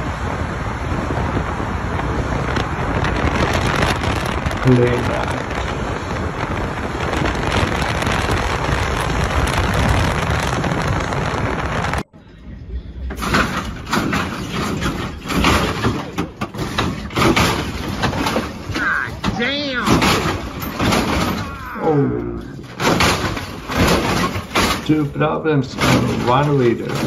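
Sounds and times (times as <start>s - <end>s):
lowriders hopping thumps and clatter: 0.0s - 12.1s, 13.1s - 21.8s, 22.6s - 27.0s
car road and wind noise in tunnel: 0.0s - 27.0s
voices: 18.1s - 22.8s.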